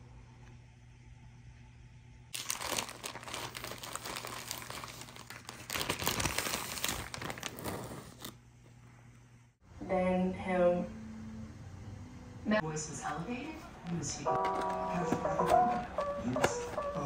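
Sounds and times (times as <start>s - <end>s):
faint room hum: 0.0s - 17.0s
plastic bag crinkling: 2.4s - 8.4s.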